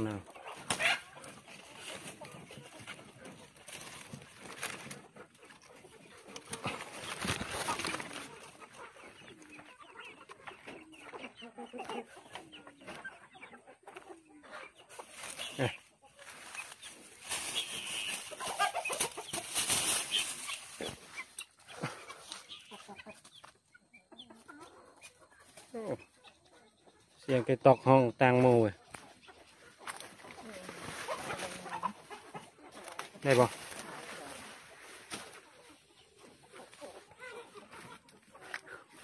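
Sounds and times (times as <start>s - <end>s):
leaves and plastic bag rustling: 0.0s - 9.8s, 14.8s - 23.4s, 28.0s - 39.0s
chickens clucking: 0.0s - 39.0s.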